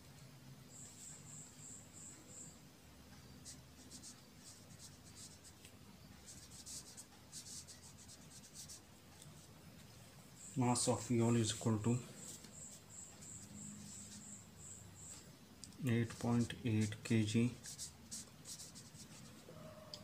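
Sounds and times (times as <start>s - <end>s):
marker scratching on paper: 3.2s - 9.5s, 10.9s - 15.3s, 16.0s - 19.5s.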